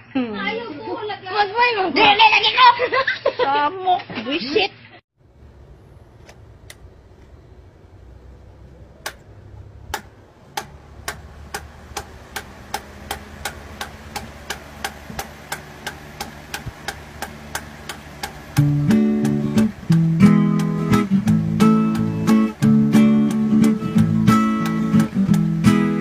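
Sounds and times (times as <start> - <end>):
electric fan ticking: 5.2 - 26.0
low motor hum: 5.2 - 26.0
clicks: 6.2 - 7.4, 8.6 - 9.3, 9.9 - 19.9
guitar music: 10.7 - 26.0.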